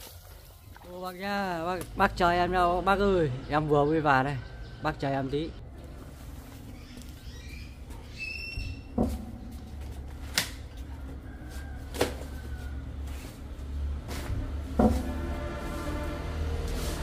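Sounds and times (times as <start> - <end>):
plastic tubes knocking: 8.9 - 10.7, 14.7 - 15.4.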